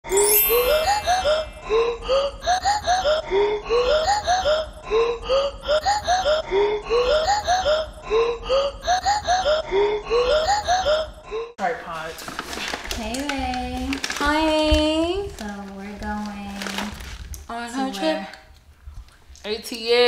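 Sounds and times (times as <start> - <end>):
laughter-like voice sounds: 0.7 - 11.5.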